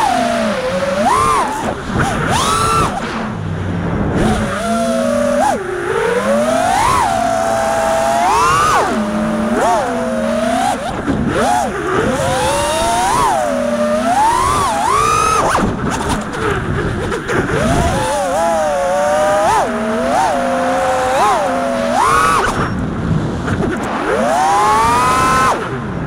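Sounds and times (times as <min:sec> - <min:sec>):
drone motors whining: 0:00.0 - 0:26.0
rushing air: 0:01.5 - 0:04.6.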